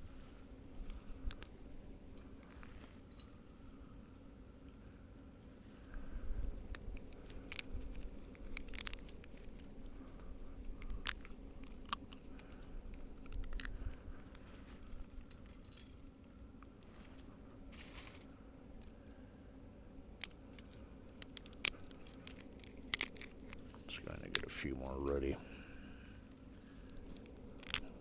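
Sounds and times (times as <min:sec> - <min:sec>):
twigs snapping: 0:00.8 - 0:01.6, 0:05.9 - 0:15.8, 0:19.9 - 0:28.0.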